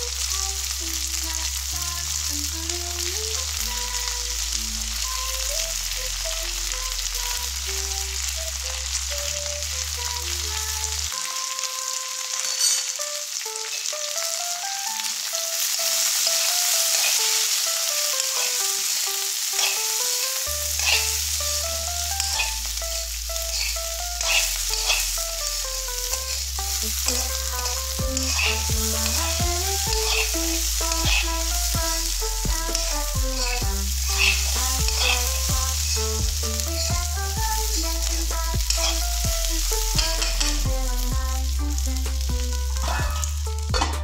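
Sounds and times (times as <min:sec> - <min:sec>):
background music: 0:00.0 - 0:44.0
green beans sizzling in a pan: 0:00.0 - 0:44.0
metal spatula scraping a pan: 0:12.4 - 0:13.0, 0:19.5 - 0:21.2, 0:22.2 - 0:25.2, 0:27.1 - 0:29.2.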